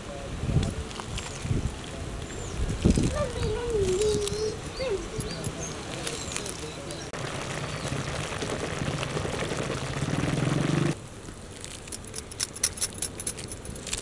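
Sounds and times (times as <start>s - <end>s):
crackles and drips: 0.6s - 5.0s, 5.8s - 14.0s
noodles boiling and bubbling: 5.9s - 12.3s.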